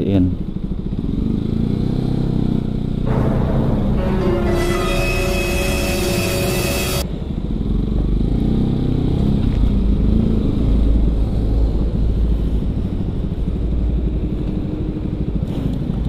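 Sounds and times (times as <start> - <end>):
background music: 3.1 - 7.0.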